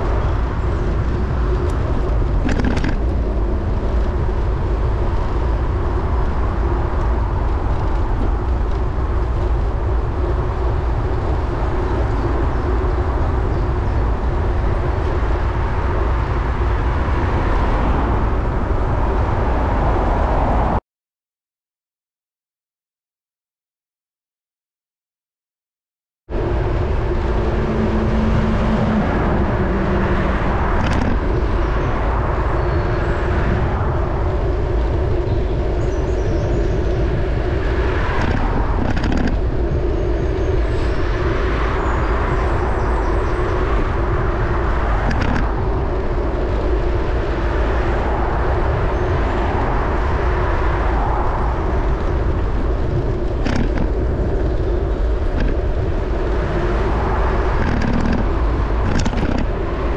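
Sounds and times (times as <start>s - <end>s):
bicycle road noise: 0.0s - 20.8s, 26.3s - 59.9s
wind rumble on microphone: 0.0s - 20.8s, 26.3s - 59.9s
motor traffic passing: 26.3s - 59.9s.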